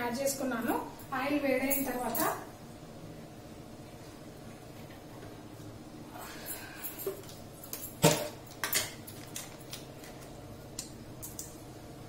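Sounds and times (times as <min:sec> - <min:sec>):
metal cookware clinking: 0:07.9 - 0:09.6.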